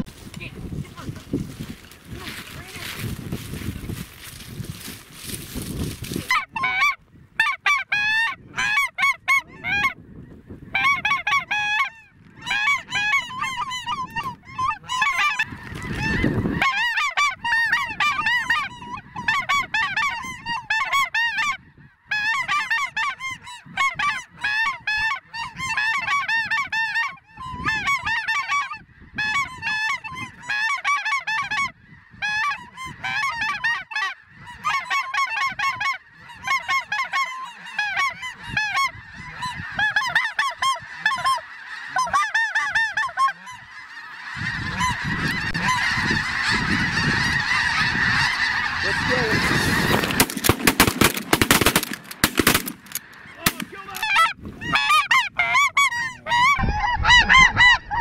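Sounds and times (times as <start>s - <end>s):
wind rumble: 0.0s - 7.4s, 44.4s - 53.4s
geese honking: 2.0s - 58.0s
shotgun blasts: 49.9s - 53.7s.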